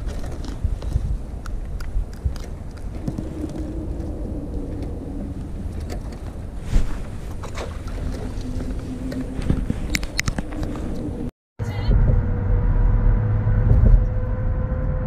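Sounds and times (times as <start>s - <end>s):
wind buffeting microphone: 0.0s - 11.3s
low motor hum: 2.7s - 15.0s.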